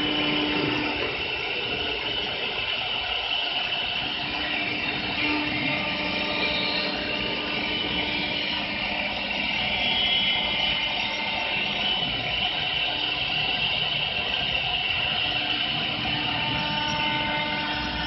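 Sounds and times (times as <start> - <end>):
high whine: 0.0 - 18.0
lathe cutting wood: 0.0 - 18.0.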